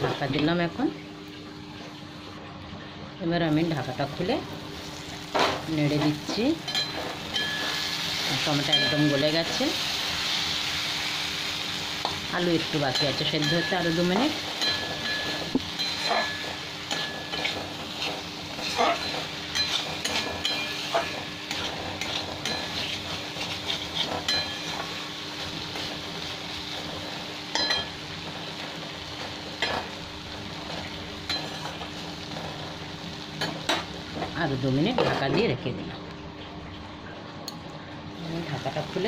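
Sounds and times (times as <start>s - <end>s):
vegetables sizzling in a pan: 3.2s - 35.9s, 38.1s - 39.0s
spatula scraping and knocking pan: 13.0s - 25.0s.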